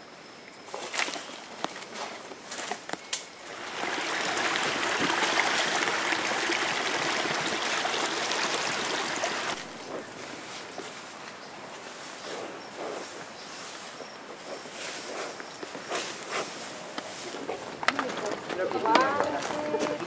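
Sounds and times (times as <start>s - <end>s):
stream water rushing: 3.3s - 11.2s.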